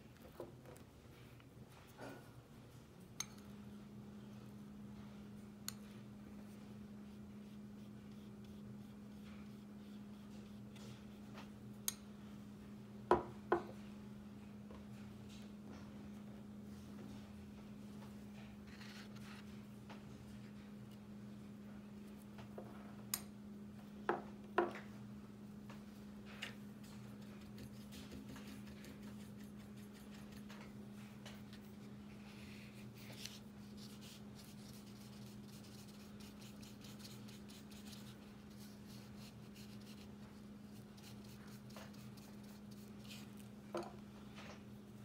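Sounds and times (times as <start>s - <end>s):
steady low hum: 0.0s - 45.0s
brush scratching on paper: 26.8s - 30.6s, 31.5s - 43.4s.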